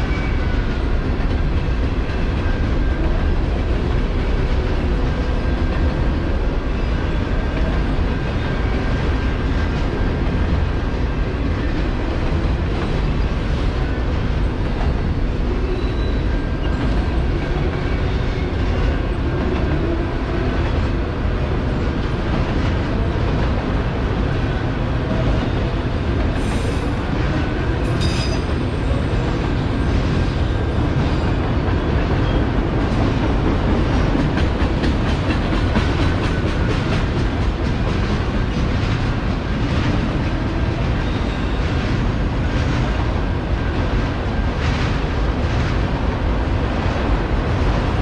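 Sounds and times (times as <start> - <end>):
steel wheels rolling on rail: 0.0 - 48.0.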